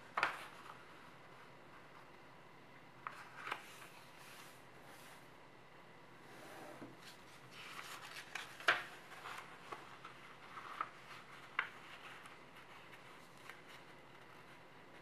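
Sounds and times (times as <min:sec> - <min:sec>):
paper rustling and crinkling: 0:00.0 - 0:01.0, 0:03.0 - 0:05.2, 0:07.0 - 0:15.0.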